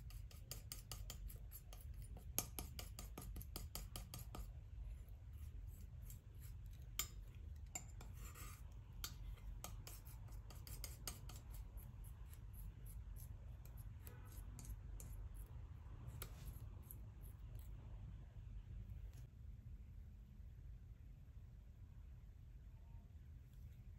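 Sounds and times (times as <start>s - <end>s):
palette knife scraping paint: 0.0s - 17.9s.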